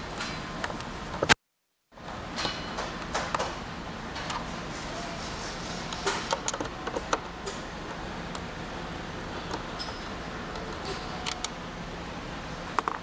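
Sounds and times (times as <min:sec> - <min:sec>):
steady low hum: 0:02.0 - 0:13.0.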